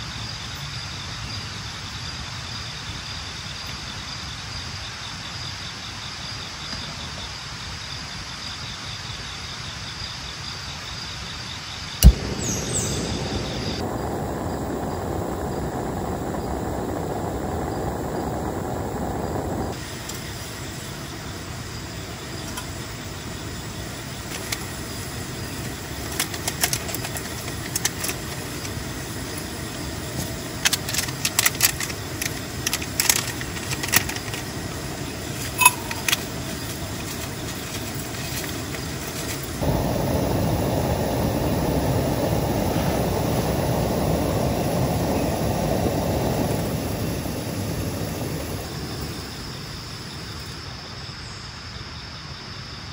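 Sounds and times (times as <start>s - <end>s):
heavy rain on tent: 12.0s - 49.7s
gas stove burner running: 12.0s - 49.8s.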